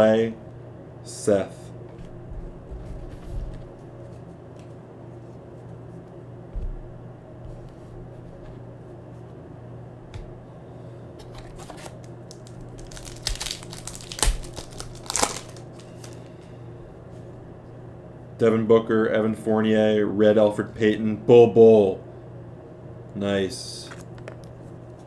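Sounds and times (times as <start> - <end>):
steady low hum: 0.0 - 25.0
foil wrapper tearing and crinkling: 11.4 - 16.3.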